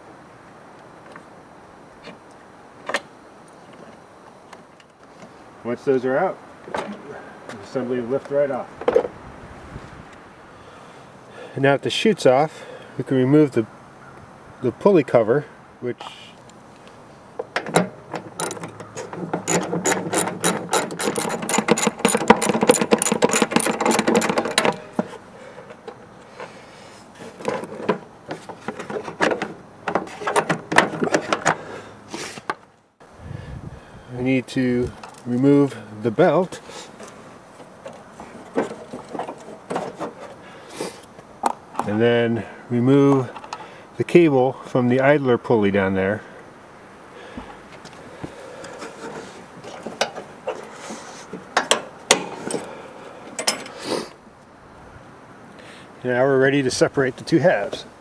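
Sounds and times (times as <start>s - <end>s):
sharp metallic clicks and clinks: 17.6s - 24.8s
short scrape: 31.6s - 32.5s, 50.6s - 51.4s, 53.7s - 54.2s.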